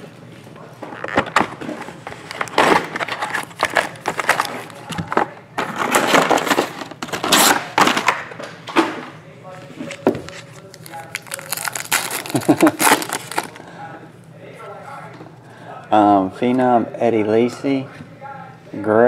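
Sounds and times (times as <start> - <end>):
foil packs rustling and crinkling: 10.4 - 13.6.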